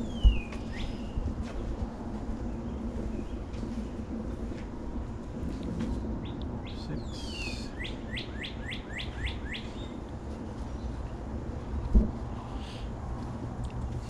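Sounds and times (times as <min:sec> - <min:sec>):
songbird singing: 0:00.0 - 0:01.8, 0:06.0 - 0:11.4.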